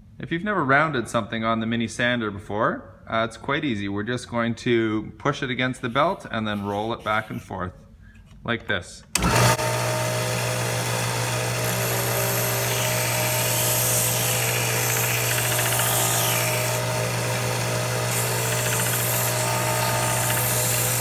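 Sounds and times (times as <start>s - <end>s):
belt sander motor hum: 9.2s - 21.0s
wood rasping against sanding belt: 11.6s - 21.0s.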